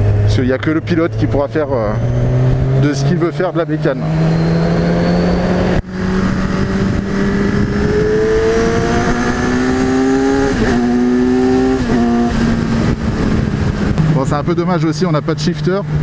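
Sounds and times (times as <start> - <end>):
motorcycle engine accelerating: 0.0 - 16.0
wind rush: 4.0 - 14.7.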